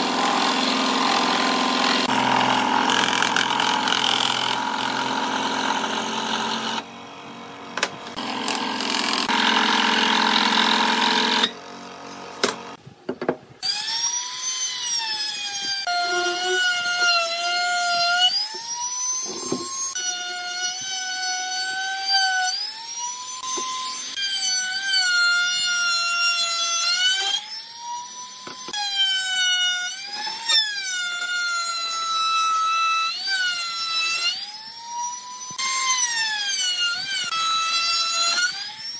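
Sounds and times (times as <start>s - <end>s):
scroll saw cutting: 0.0s - 6.9s, 8.1s - 12.4s
trim router whining: 0.0s - 12.7s, 13.6s - 21.0s.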